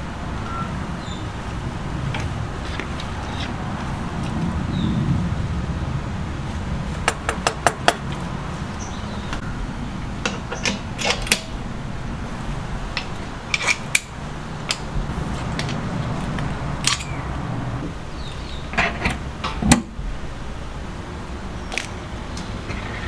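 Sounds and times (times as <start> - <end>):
steady low hum: 0.0 - 23.0
metal fittings clicking: 13.0 - 14.1.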